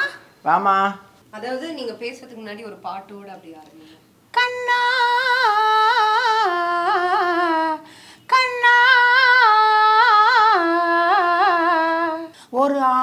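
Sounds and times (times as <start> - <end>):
woman singing unaccompanied: 0.0 - 0.4, 1.4 - 13.0.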